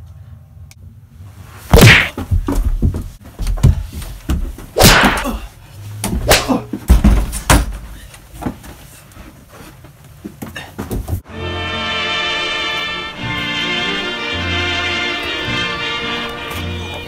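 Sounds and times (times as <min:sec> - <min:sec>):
thuds slaps and bumps: 0:01.7 - 0:05.4, 0:06.0 - 0:08.8.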